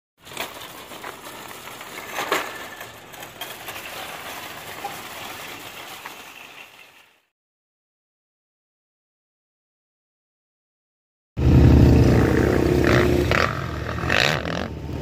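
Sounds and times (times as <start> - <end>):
shopping cart rattling on asphalt: 0.2 - 7.3.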